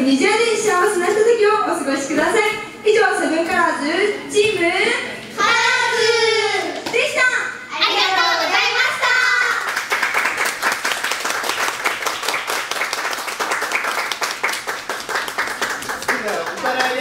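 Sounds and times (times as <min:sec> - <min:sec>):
audience applause: 0:09.5 - 0:17.0.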